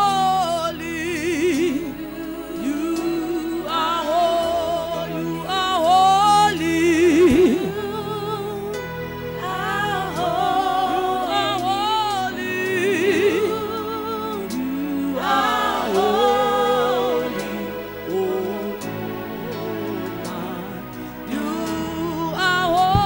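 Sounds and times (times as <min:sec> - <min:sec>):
sustained chords: 0:00.0 - 0:23.0
women singing gospel song: 0:00.0 - 0:23.0.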